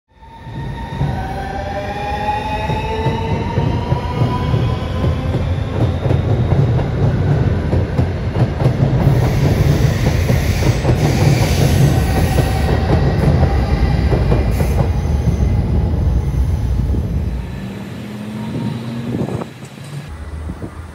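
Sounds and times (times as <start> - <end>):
train wheels rumbling on rails: 0.4 - 20.9.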